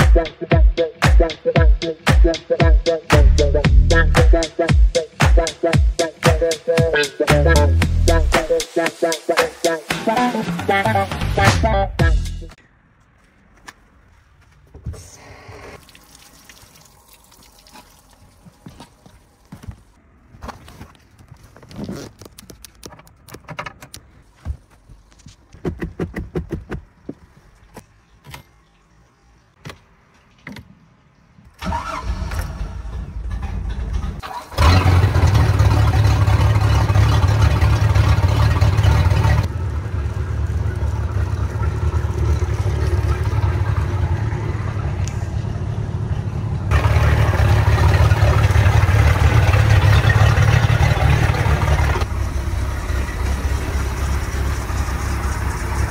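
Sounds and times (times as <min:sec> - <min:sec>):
boat engine starting and running: 0:31.6 - 0:55.9.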